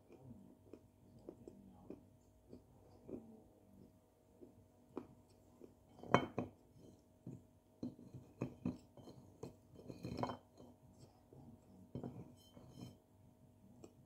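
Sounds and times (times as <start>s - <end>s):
bits tapping onto a dish: 7.2s - 10.7s.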